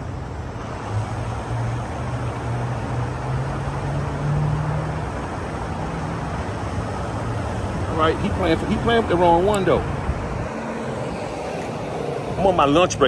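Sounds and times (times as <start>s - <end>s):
even rushing noise: 5.8s - 13.0s.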